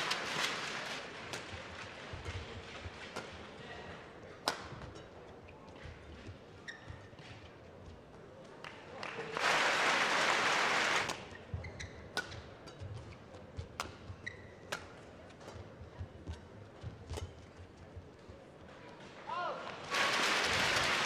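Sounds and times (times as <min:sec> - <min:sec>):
rackets striking shuttlecock: 0:01.3 - 0:03.6, 0:04.2 - 0:05.2, 0:12.0 - 0:17.4
crowd applause: 0:09.0 - 0:11.1, 0:19.9 - 0:21.0.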